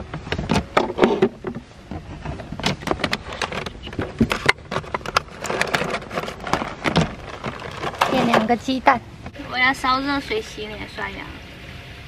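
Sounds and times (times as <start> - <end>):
rummaging through plastic box: 0.9 - 8.7.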